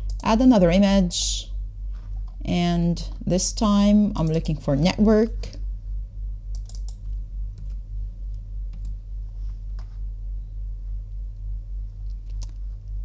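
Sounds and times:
steady low hum: 0.0s - 13.0s
keyboard keystrokes: 6.5s - 7.0s.

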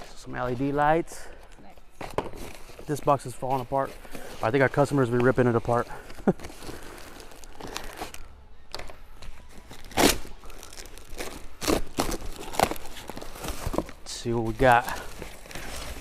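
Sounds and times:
packaging crinkling: 4.1s - 8.3s, 9.5s - 16.0s
cardboard box tearing: 9.8s - 14.0s.

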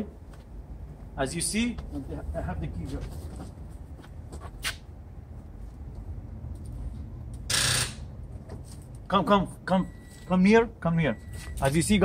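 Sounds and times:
rustling and shuffling: 0.2s - 7.2s.

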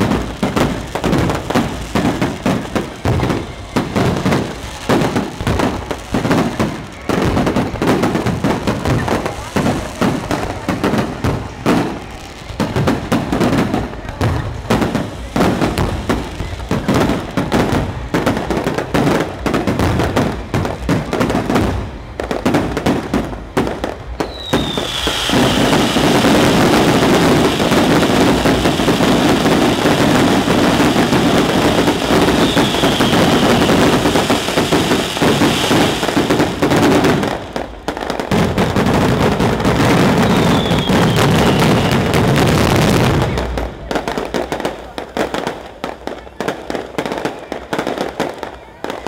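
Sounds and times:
fireworks bangs and crackle: 0.0s - 49.0s
falling firework whistles: 23.8s - 37.6s, 39.6s - 43.7s.

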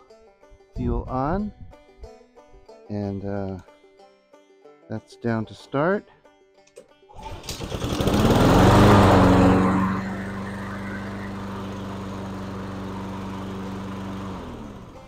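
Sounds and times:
lawnmower engine pull-started: 7.1s - 15.0s.

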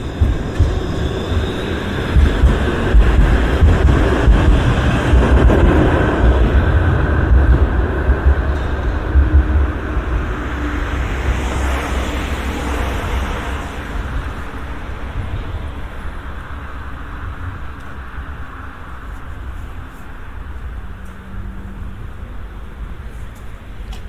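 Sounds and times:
vehicle passing by: 3.0s - 15.7s.

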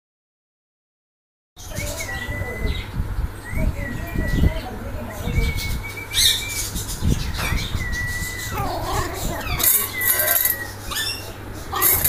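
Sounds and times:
puppies scuffling: 7.4s - 12.0s
puppy whines and yelps: 7.4s - 12.0s.

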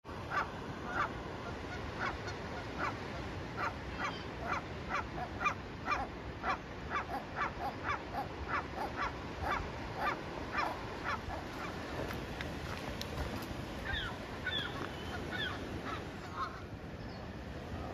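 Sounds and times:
geese honking: 0.3s - 3.0s, 13.8s - 16.7s.

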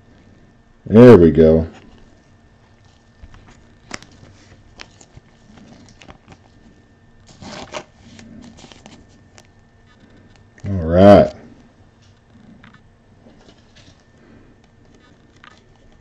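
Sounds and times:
trading cards clicking and rustling: 2.8s - 10.6s, 12.0s - 16.0s.

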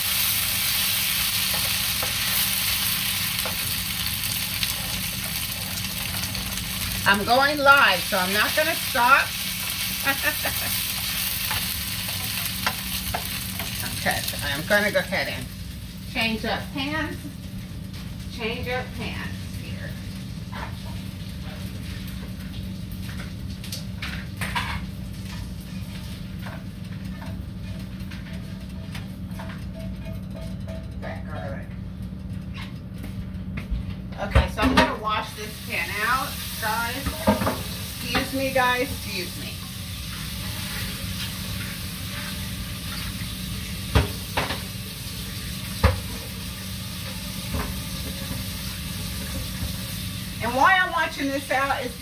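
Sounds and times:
pots and pans clattering: 24.0s - 31.5s, 36.9s - 39.0s, 40.1s - 44.8s, 45.4s - 49.9s.

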